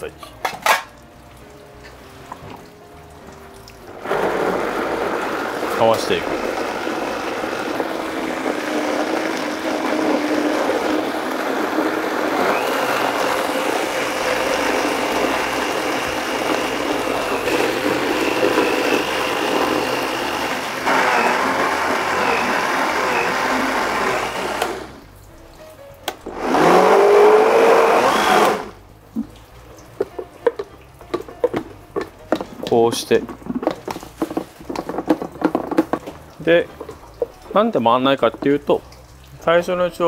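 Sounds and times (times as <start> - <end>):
blender motor whine: 3.9 - 25.0, 26.2 - 28.8.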